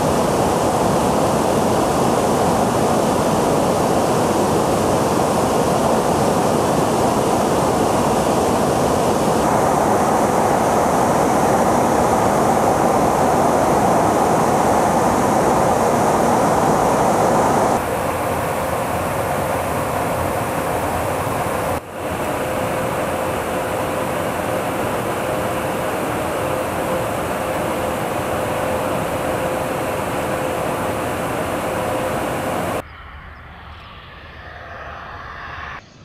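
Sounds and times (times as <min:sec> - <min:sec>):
aircraft engine and airflow rush: 0:00.0 - 0:36.0.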